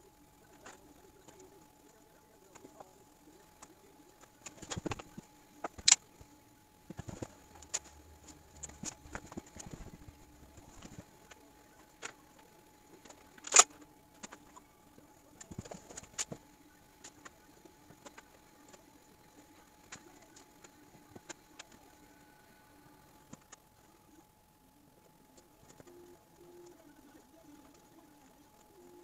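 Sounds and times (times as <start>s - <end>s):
sharp plastic clacks: 13.0s - 14.4s.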